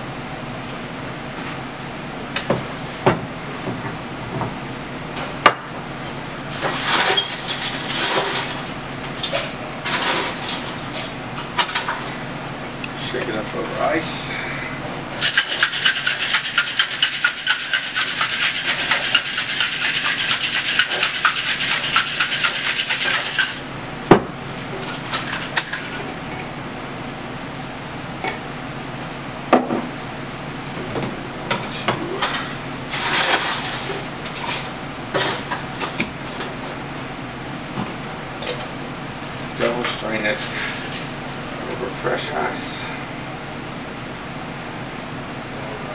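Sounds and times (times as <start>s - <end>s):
ice rattling in shaker: 15.2s - 23.6s, 32.9s - 34.6s.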